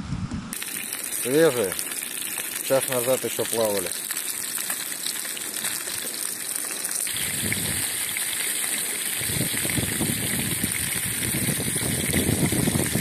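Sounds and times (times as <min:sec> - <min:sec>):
low gusting rumble: 0:00.0 - 0:00.5, 0:07.2 - 0:08.0, 0:09.2 - 0:13.0.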